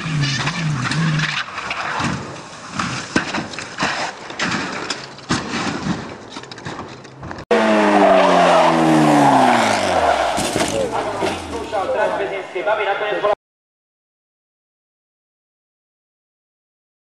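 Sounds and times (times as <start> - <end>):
car skidding on tarmac: 7.5 - 12.2
racing car engine passing by: 7.5 - 12.2.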